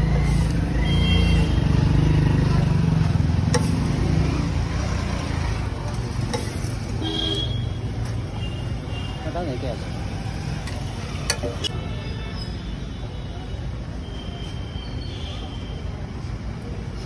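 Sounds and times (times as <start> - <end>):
road traffic rumble: 0.0 - 17.0
metal spatula clicking on griddle: 3.5 - 3.8, 6.3 - 6.6.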